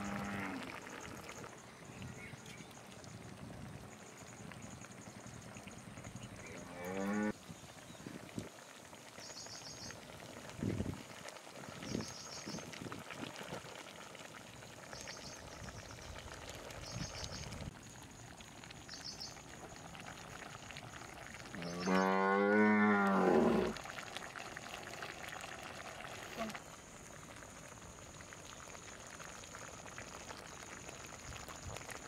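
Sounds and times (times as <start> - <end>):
cow mooing: 0.0 - 0.6, 6.5 - 7.3, 21.8 - 23.8.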